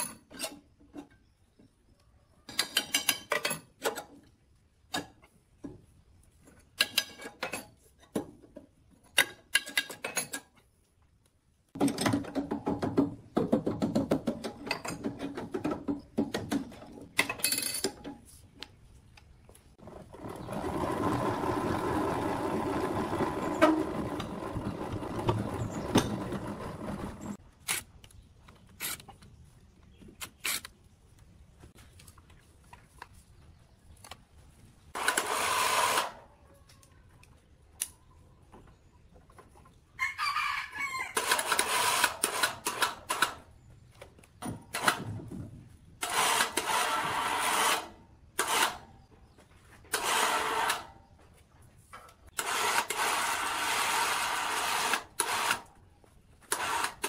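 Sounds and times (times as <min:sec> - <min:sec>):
metal parts knocking and clanking: 0:02.5 - 0:04.2, 0:11.8 - 0:18.2
rooster crowing: 0:40.0 - 0:41.3.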